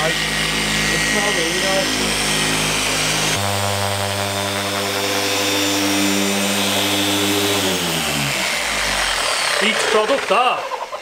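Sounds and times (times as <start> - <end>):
electric car polisher motor hum: 0.0 - 11.0.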